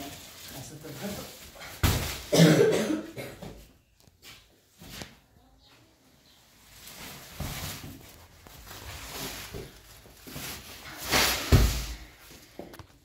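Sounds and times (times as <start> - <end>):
plastic sacks rustling: 0.0 - 2.7, 6.5 - 13.0
shuffling footsteps on tile: 3.4 - 13.0.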